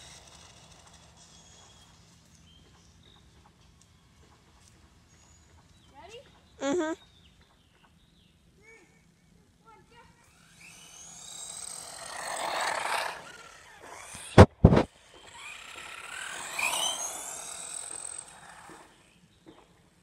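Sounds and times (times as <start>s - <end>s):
electric motor whining: 0.0s - 2.0s, 10.3s - 19.2s.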